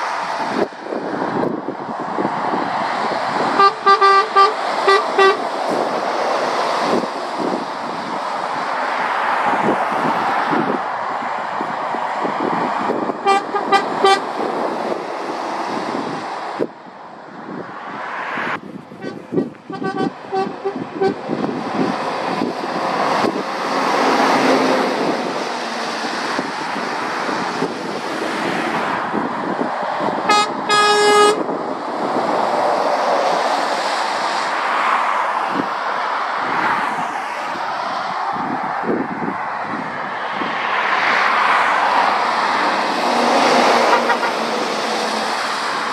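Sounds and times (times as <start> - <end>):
passing lorries: 0.0 - 45.9
horn toots: 3.5 - 5.5, 13.2 - 14.4, 19.0 - 21.2, 30.2 - 31.4, 43.4 - 44.5.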